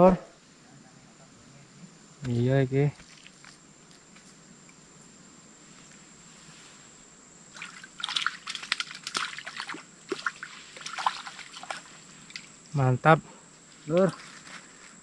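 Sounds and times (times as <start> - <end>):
water splashing and trickling: 7.5 - 12.6, 13.9 - 15.0.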